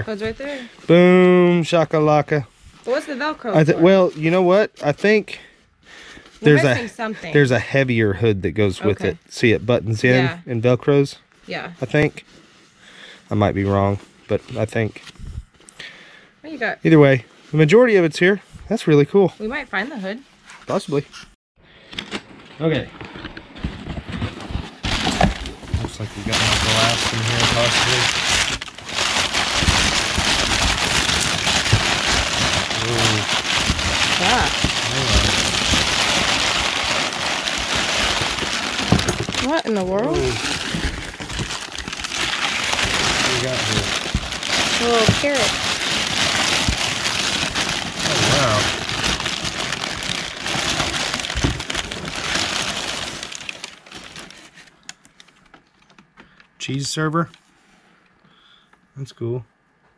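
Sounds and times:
packing paper crinkling: 0:02.9 - 0:05.0, 0:06.4 - 0:07.5, 0:23.6 - 0:56.2.

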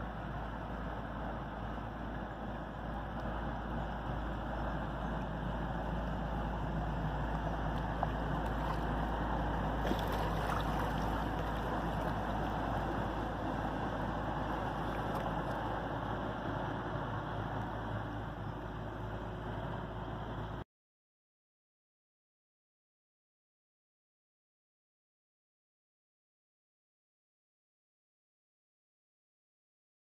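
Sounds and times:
diesel engine humming: 0:00.0 - 0:20.6.

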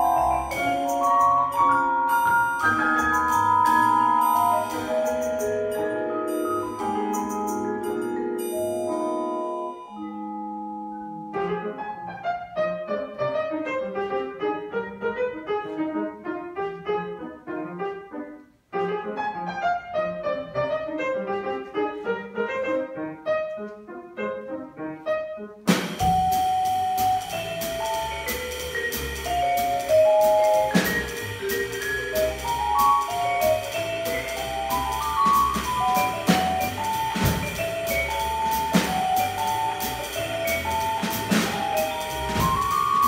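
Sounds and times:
drum kit with cymbals: 0:00.0 - 0:09.4, 0:25.7 - 0:43.0
vibraphone: 0:00.0 - 0:11.5, 0:25.9 - 0:43.0
double bass: 0:00.0 - 0:12.0, 0:25.7 - 0:43.0.

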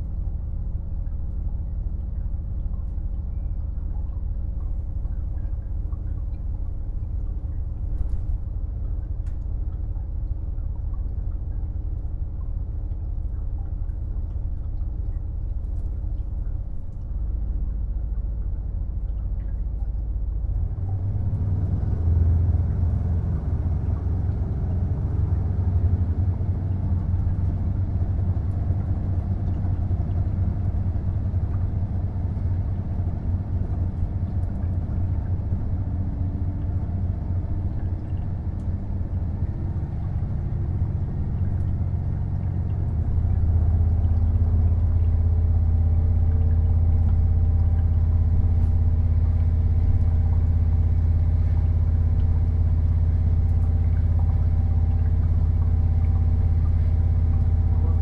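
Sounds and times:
diesel railcar engine rumble: 0:00.0 - 0:58.0.

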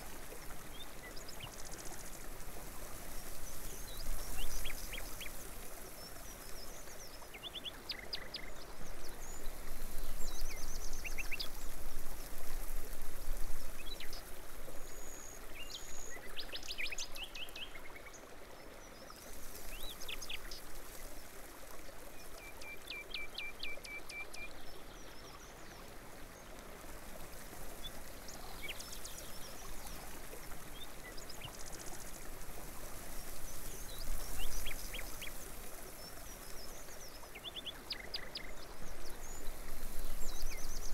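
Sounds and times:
water trickling: 0:00.0 - 0:40.9
small birds chirping: 0:02.9 - 0:11.8, 0:27.7 - 0:40.9.

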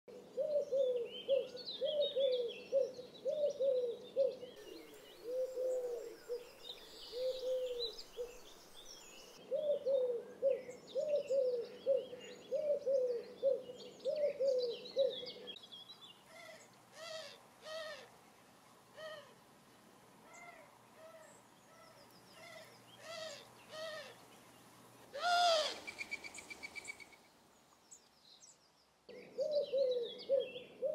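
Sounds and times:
small birds chirping faintly: 0:00.1 - 0:30.9
doves cooing: 0:00.2 - 0:08.6, 0:09.3 - 0:15.5, 0:20.3 - 0:24.2, 0:25.1 - 0:27.0, 0:29.1 - 0:30.9
dove nasal trumpet-like calls: 0:16.3 - 0:18.1, 0:20.2 - 0:24.2, 0:25.1 - 0:25.9.

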